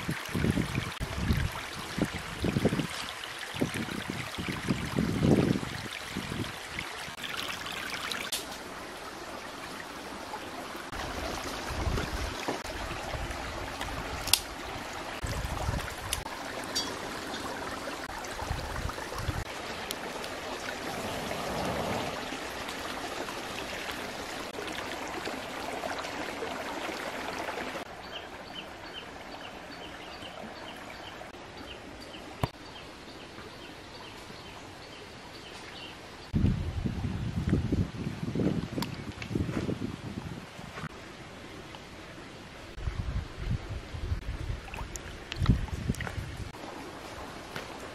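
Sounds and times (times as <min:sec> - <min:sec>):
water rushing over rocks: 0:00.0 - 0:28.0.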